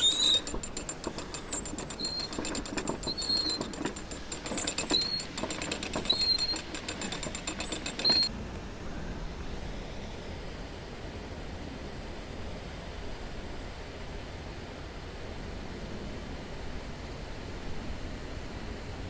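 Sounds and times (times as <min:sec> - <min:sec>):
ratchet pawl clicking: 0:00.0 - 0:08.3
short high squeak: 0:00.0 - 0:08.3.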